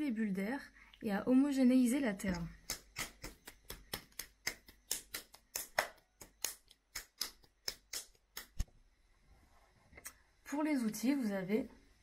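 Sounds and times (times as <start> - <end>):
hands patting clay: 2.2 - 8.7.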